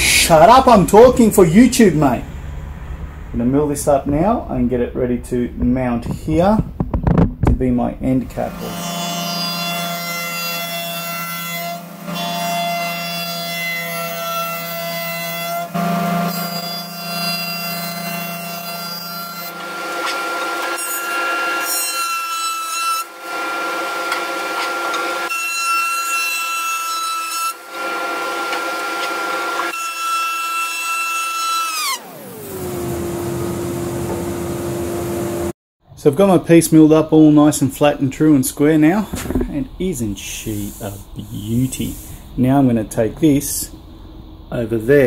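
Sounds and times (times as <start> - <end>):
cutterheads shearing wood: 8.3 - 34.8, 38.8 - 42.2.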